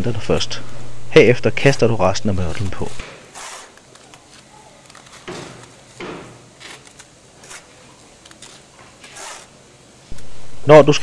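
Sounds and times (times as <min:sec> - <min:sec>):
trowel scraping mortar: 0:02.8 - 0:03.8, 0:08.4 - 0:09.5.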